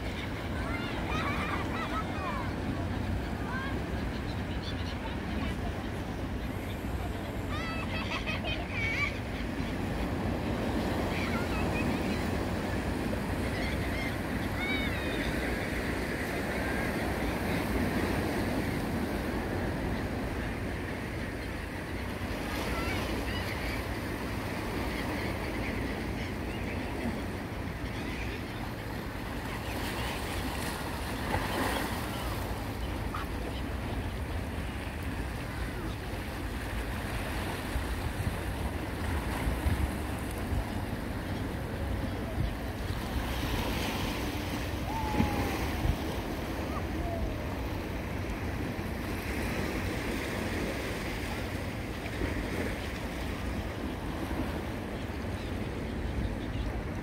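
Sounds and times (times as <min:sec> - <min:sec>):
waves breaking over rocks: 0:42.6 - 0:53.3.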